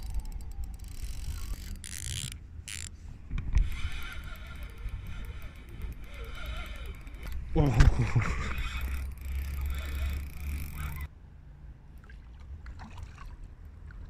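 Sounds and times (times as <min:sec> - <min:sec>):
fishing reel ticking: 0:00.0 - 0:11.1.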